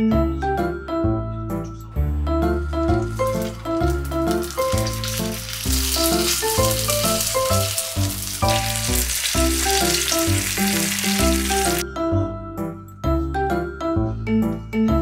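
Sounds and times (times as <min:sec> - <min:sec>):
background music with steady beat: 0:00.0 - 0:15.0
oil sizzling in a frying pan: 0:02.8 - 0:11.8.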